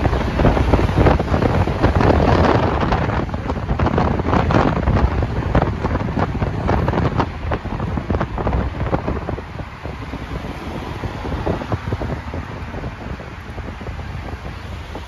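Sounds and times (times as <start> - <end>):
road noise: 0.0 - 15.0
wind buffeting microphone: 0.0 - 15.0.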